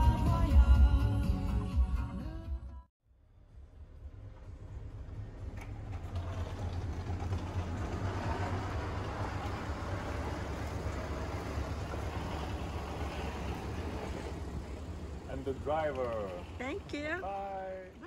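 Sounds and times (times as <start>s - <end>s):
traffic noise: 3.2s - 18.0s
vehicle engines rumbling: 3.3s - 18.0s.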